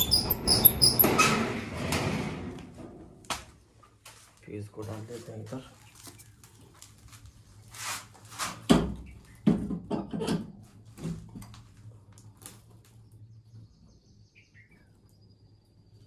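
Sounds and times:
bird chirping: 0:00.0 - 0:01.0, 0:13.0 - 0:16.0.

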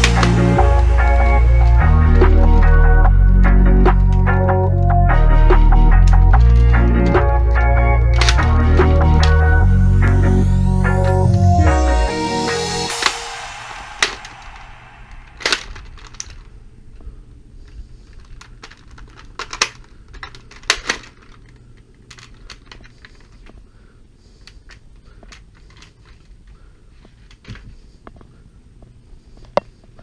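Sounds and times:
plastic toy blaster clacks: 0:17.7 - 0:23.5.

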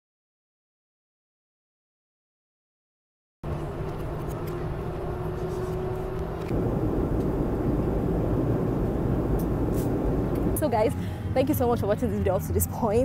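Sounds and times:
airliner cabin engine drone: 0:03.4 - 0:12.6.

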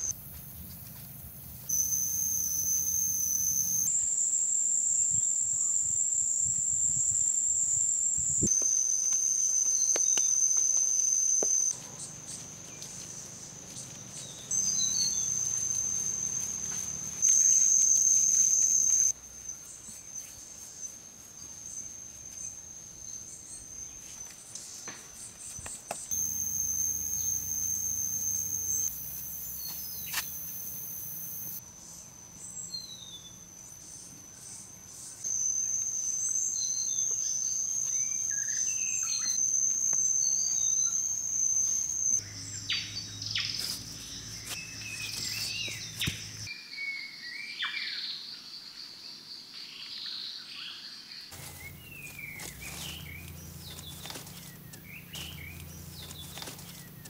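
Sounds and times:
high-pitched insect drone: 0:01.7 - 0:11.8, 0:12.5 - 0:19.2, 0:26.1 - 0:32.0, 0:32.6 - 0:46.5, 0:51.3 - 0:57.0
bird chirps: 0:08.4 - 0:20.4, 0:35.2 - 0:48.4, 0:49.9 - 0:57.0.

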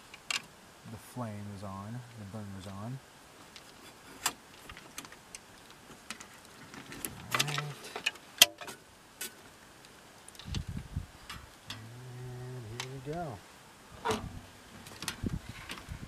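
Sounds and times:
wire connectors clicking and rattling: 0:03.5 - 0:08.8, 0:14.0 - 0:16.0.

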